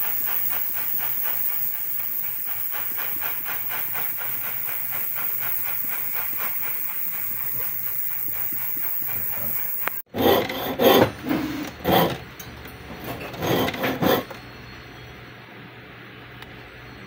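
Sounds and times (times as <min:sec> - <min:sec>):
soldering torch hissing: 0:00.0 - 0:10.1
saw cutting metal: 0:00.0 - 0:12.2, 0:12.9 - 0:14.4.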